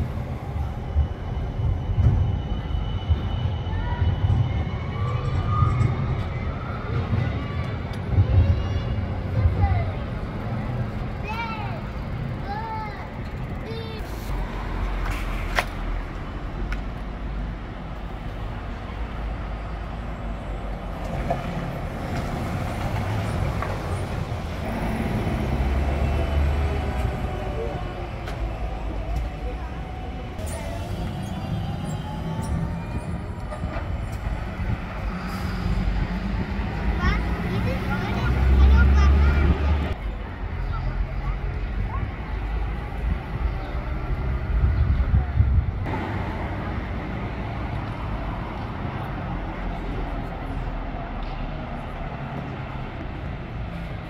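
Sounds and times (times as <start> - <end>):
city street traffic rumble: 0.0 - 54.0
vehicle passing: 20.8 - 30.2, 33.0 - 40.0
wind on microphone: 41.9 - 46.0.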